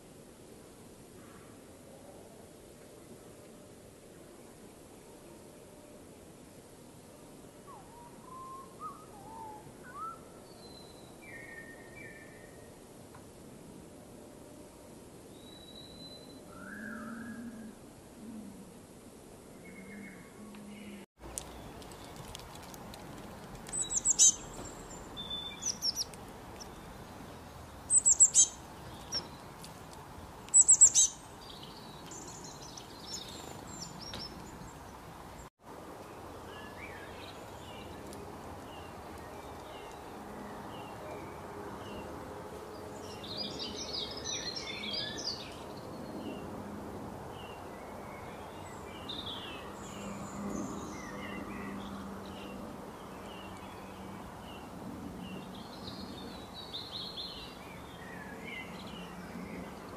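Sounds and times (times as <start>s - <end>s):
birds chirping and twittering: 7.4s - 12.8s, 19.4s - 59.9s
sharp high-pitched bird calls: 23.7s - 26.8s, 27.9s - 29.3s, 30.5s - 31.2s.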